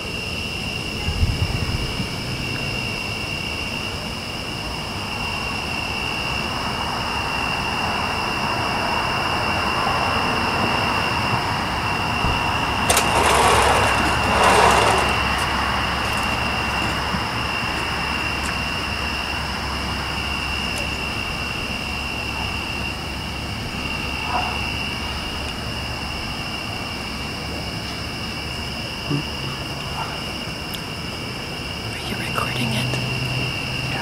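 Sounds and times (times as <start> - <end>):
vehicle passing: 12.6 - 17.4.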